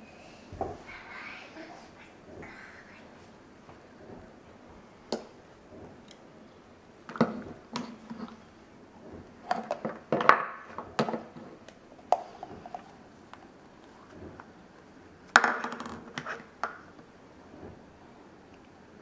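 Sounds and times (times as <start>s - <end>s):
plastic tubs clicking and knocking: 7.0s - 8.3s, 9.4s - 12.8s, 15.4s - 17.0s.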